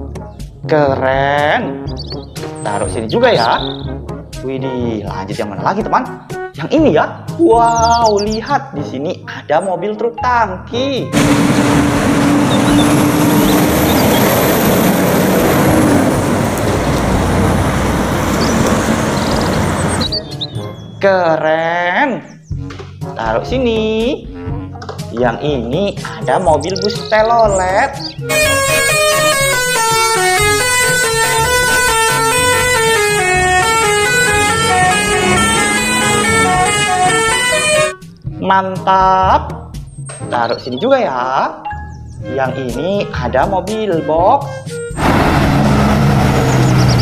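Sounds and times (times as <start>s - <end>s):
background music: 0.0s - 14.5s, 19.8s - 47.0s
multi-tone bus horn melody: 11.1s - 20.9s, 28.2s - 38.2s, 44.6s - 47.0s
truck engine rumbling: 11.1s - 21.0s, 26.0s - 38.2s, 44.6s - 47.0s
road noise: 11.1s - 21.1s, 26.0s - 38.3s, 44.4s - 47.0s.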